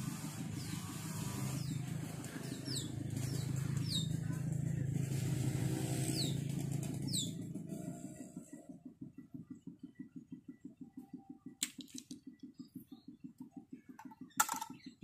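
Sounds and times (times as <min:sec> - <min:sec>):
steady low hum: 0:00.0 - 0:15.0
birds chirping: 0:01.5 - 0:04.3, 0:06.0 - 0:07.4.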